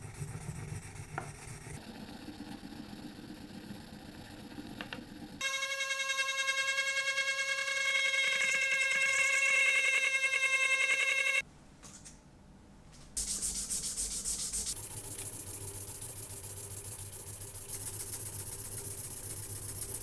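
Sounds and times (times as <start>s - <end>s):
metal scraping on sandpaper: 0.0s - 1.8s.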